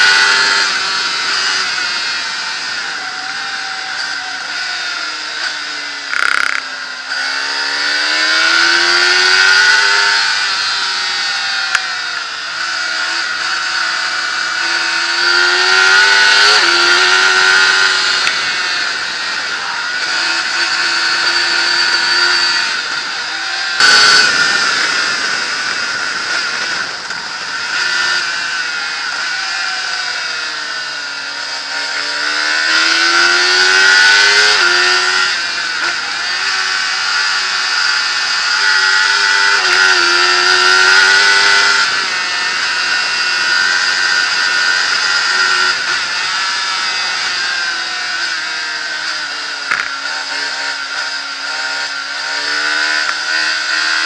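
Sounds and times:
racing engine accelerating: 0.0s - 54.0s
wind rush on microphone: 17.6s - 28.9s.

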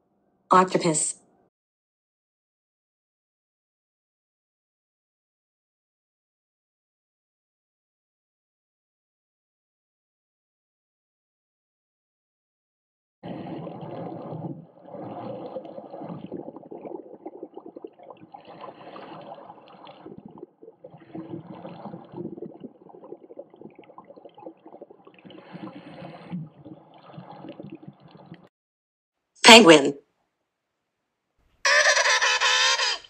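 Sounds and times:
underwater gurgling and sloshing: 13.2s - 28.5s.

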